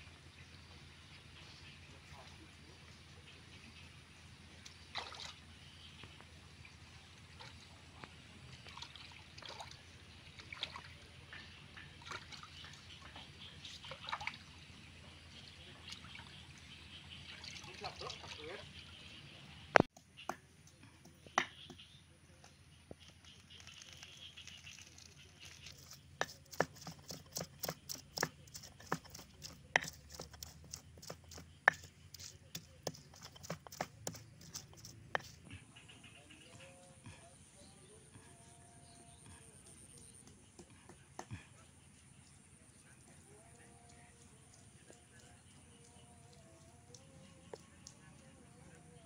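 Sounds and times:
stream trickling: 4.5 - 19.9, 23.2 - 35.4
stone pestle pounding in mortar: 26.2 - 31.9.

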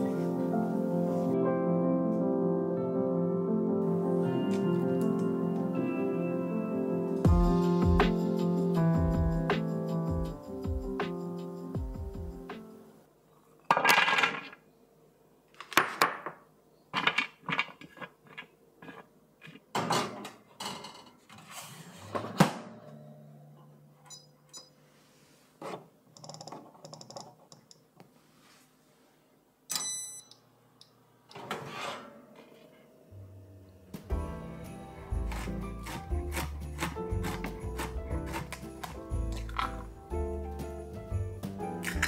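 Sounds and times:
kitchen items knocking and clinking: 13.7 - 14.6, 15.7 - 18.5, 19.4 - 21.2, 35.2 - 40.0.

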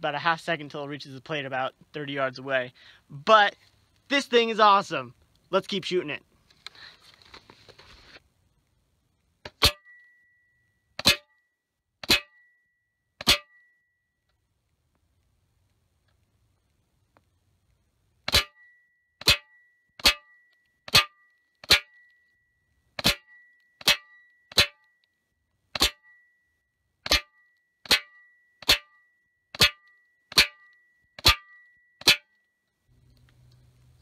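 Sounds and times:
bullets smacking metal target: 9.5 - 10.0, 11.0 - 11.4, 12.0 - 12.6, 13.2 - 13.7, 18.3 - 22.1, 23.0 - 24.9, 25.7 - 26.3, 27.0 - 32.3
faint high metallic ring: 9.7 - 14.2, 26.0 - 32.6.

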